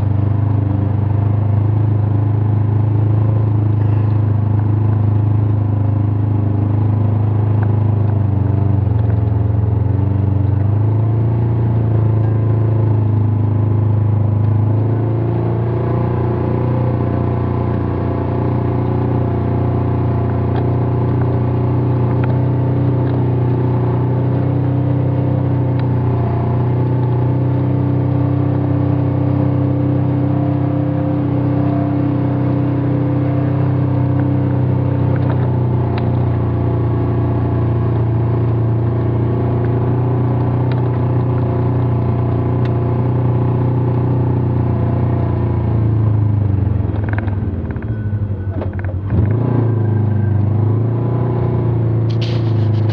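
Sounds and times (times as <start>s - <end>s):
vehicle engine running: 0.0s - 52.9s.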